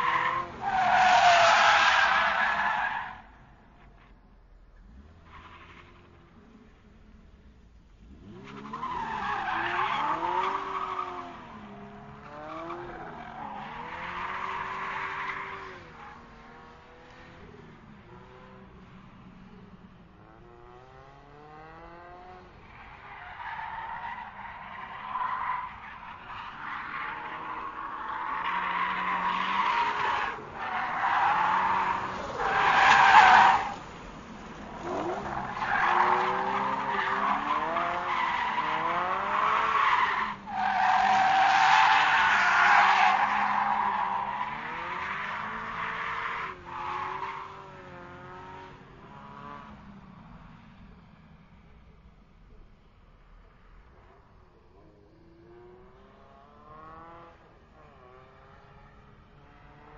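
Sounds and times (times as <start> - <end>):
racing car engine revving: 20.2 - 22.7, 26.5 - 49.9, 55.3 - 59.9.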